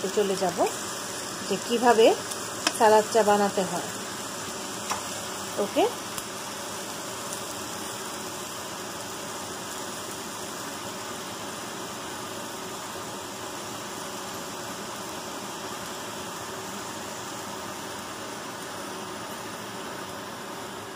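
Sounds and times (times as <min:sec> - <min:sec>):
food sizzling in a frying pan: 0:00.0 - 0:20.9.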